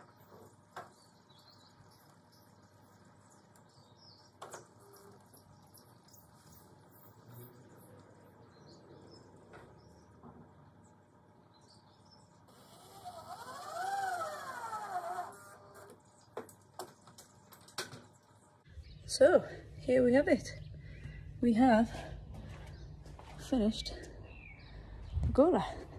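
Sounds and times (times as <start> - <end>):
cordless drill driving screw: 12.5 - 15.7.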